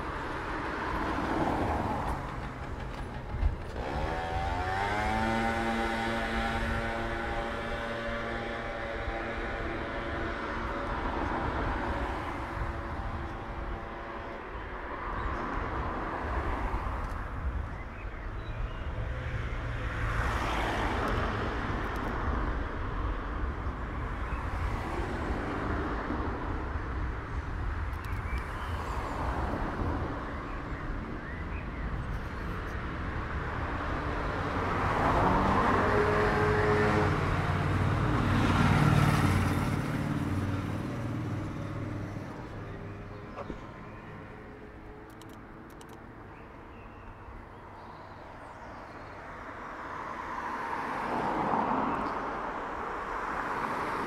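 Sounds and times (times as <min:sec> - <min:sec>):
cars passing: 0:00.0 - 0:54.0
engine running: 0:01.8 - 0:12.0.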